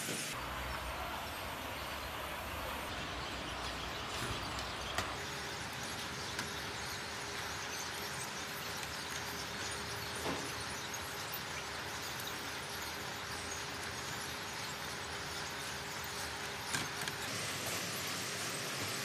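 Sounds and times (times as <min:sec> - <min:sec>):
factory background hiss: 0:00.0 - 0:06.2, 0:17.2 - 0:19.0.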